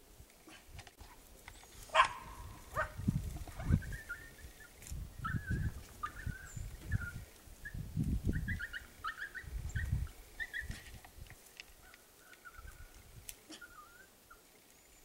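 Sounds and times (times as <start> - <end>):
small dog barking: 1.9 - 3.0.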